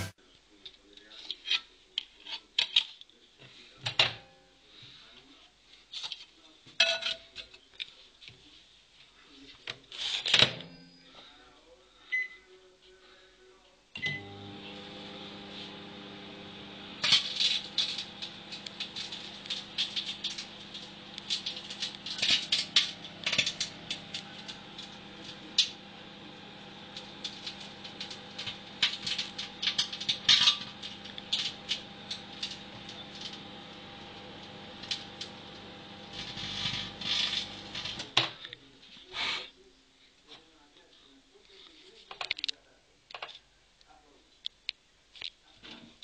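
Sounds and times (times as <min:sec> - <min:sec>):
microwave oven humming: 0:14.0 - 0:38.2
electrical sparks crackling: 0:17.0 - 0:24.6, 0:27.2 - 0:32.5.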